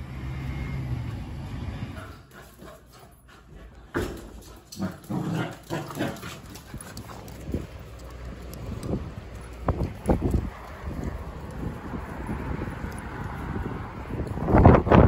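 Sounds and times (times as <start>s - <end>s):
puppies play-fighting noises: 2.0s - 13.5s.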